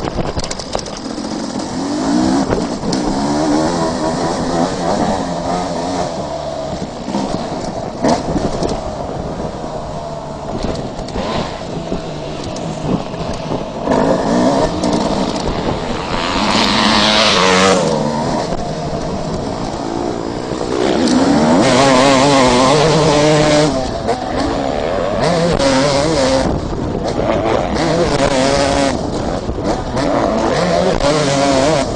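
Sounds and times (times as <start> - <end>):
motocross bike engine revving: 0.0 - 31.9.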